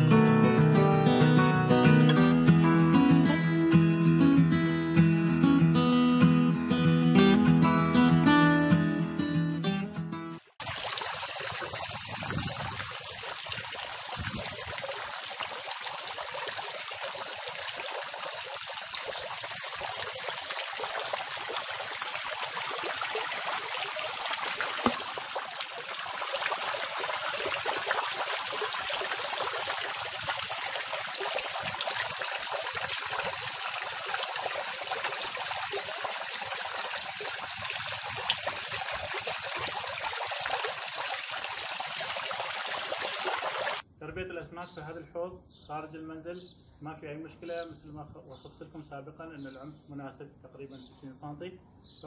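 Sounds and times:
fountain water splashing: 10.4 - 43.8.

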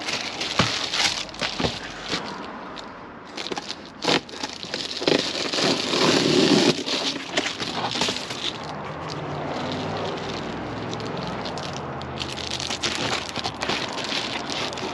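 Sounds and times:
foil crinkling: 0.0 - 2.5, 3.3 - 14.9
scissors cutting foil: 3.4 - 8.8, 9.6 - 14.9.

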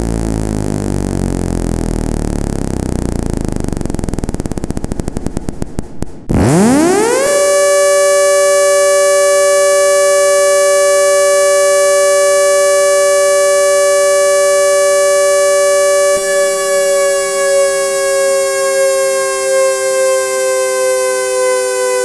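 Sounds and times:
siren winding: 6.3 - 22.0.

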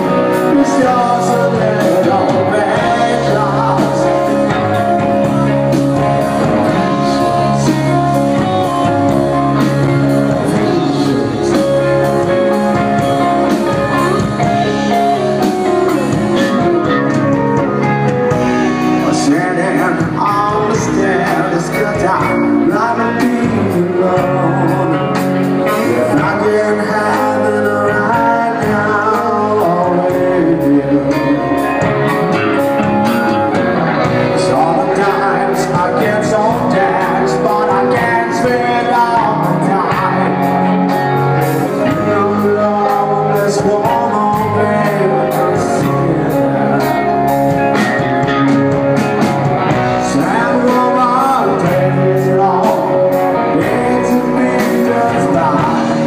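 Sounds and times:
steady drum beat: 0.0 - 26.3
person singing into microphone: 0.0 - 47.2, 49.7 - 56.0
bass guitar: 0.0 - 56.0
electric guitars: 0.0 - 56.0.

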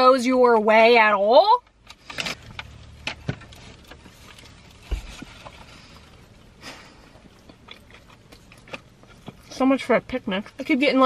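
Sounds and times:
people chewing food: 3.5 - 9.6.

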